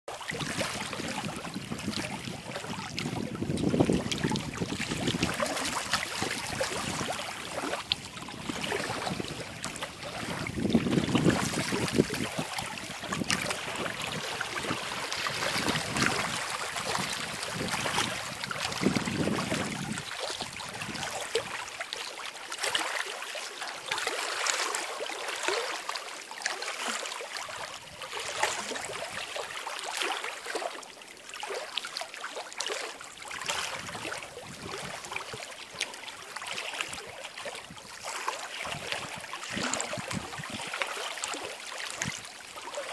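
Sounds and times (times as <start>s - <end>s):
lake waves lapping and splashing: 0.1s - 42.9s
wind rumble on microphone: 0.3s - 21.6s, 33.4s - 35.4s, 38.6s - 40.8s.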